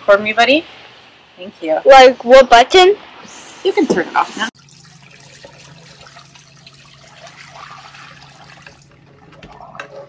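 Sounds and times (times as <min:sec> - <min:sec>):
water splashing into a sink: 0:04.6 - 0:09.9.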